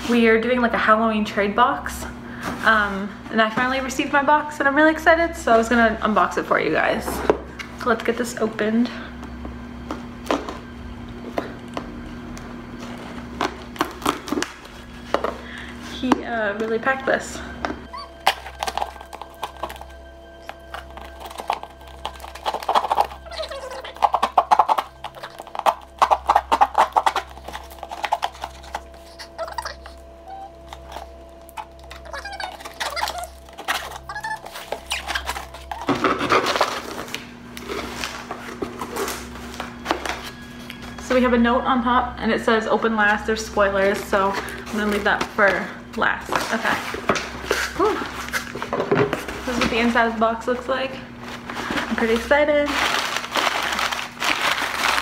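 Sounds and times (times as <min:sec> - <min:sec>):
low hum: 0:00.0 - 0:55.0
blade cutting packing tape: 0:18.0 - 0:40.4, 0:52.0 - 0:55.0.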